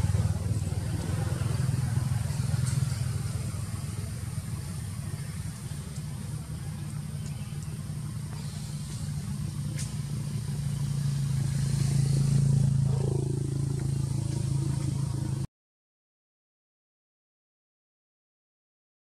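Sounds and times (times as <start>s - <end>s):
vehicle engine humming: 0.0s - 15.5s.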